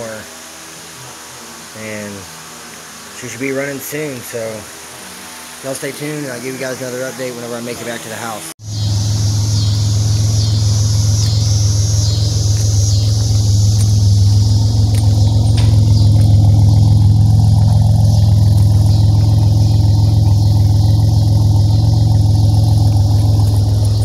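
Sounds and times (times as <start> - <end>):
car engine idling: 8.6 - 24.0.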